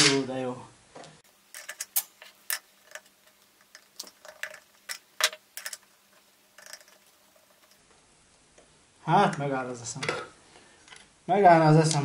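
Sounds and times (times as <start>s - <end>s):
metal parts clicking and clinking: 1.4s - 7.9s.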